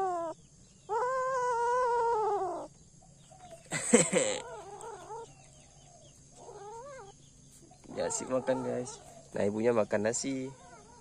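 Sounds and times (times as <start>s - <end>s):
cat crying and yowling: 0.0s - 2.7s, 6.4s - 7.2s, 7.9s - 9.1s, 10.5s - 11.0s.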